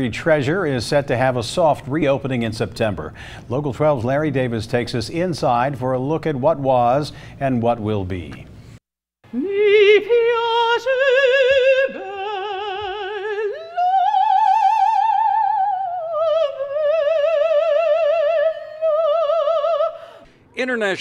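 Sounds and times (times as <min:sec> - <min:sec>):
soprano singing with vibrato: 0:09.3 - 0:20.2.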